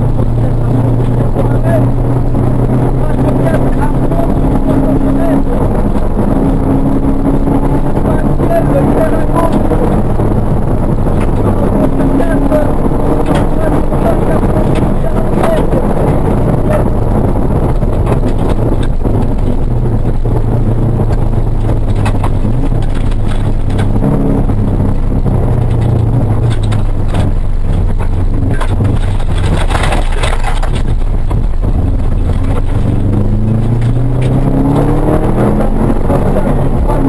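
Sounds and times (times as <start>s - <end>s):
rally car engine revving: 0.0s - 37.0s
sharp cracks: 12.9s - 35.0s.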